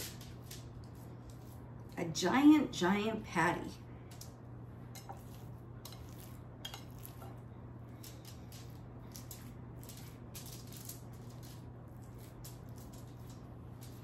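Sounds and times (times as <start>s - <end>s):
low steady hum: 0.0s - 14.0s
aluminum foil crackling: 5.0s - 14.0s.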